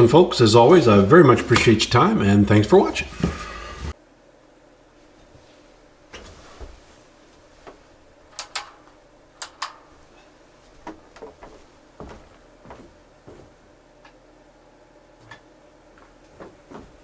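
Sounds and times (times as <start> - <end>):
footsteps: 10.6 - 13.6, 16.0 - 17.0.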